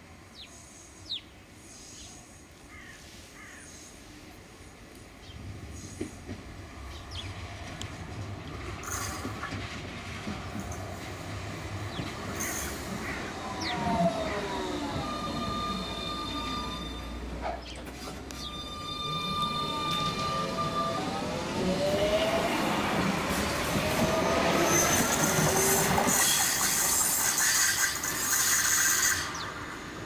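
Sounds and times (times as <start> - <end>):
tram running noise: 4.3 - 30.0.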